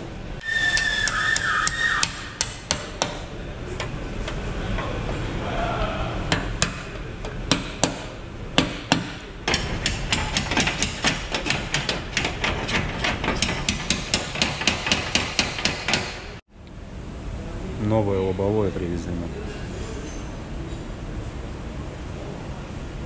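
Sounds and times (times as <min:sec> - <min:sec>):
hammer blows on steel: 0:00.4 - 0:03.2.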